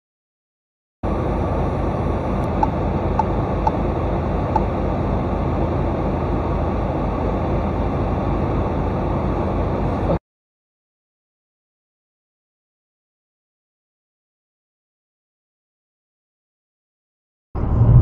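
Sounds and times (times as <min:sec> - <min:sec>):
car road and engine noise: 0:01.0 - 0:10.2, 0:17.6 - 0:18.0.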